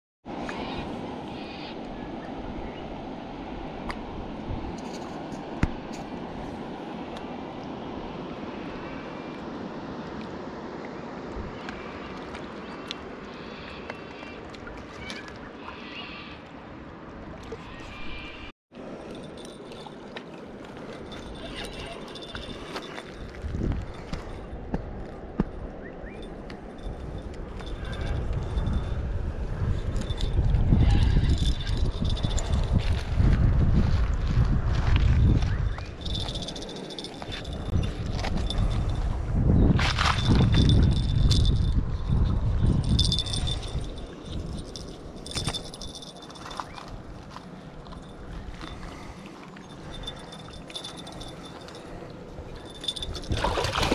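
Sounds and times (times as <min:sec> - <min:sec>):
fishing gear rustling and rattling: 0:04.7 - 0:06.7, 0:18.8 - 0:53.9
wind on microphone: 0:20.8 - 0:53.9.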